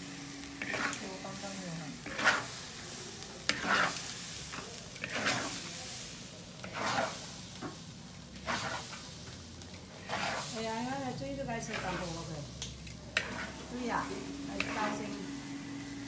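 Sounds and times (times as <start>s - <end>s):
oil sizzling: 0.0s - 16.0s
metal spatula scraping a wok: 0.6s - 7.8s, 8.4s - 9.2s, 9.9s - 12.3s, 13.1s - 15.2s.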